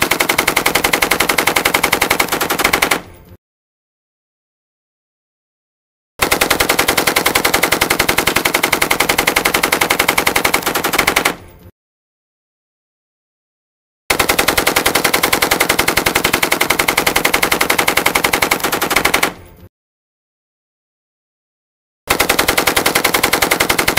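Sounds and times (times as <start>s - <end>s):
machine gun firing bursts: 0.0s - 3.1s, 6.2s - 11.4s, 14.1s - 19.4s, 22.1s - 23.9s.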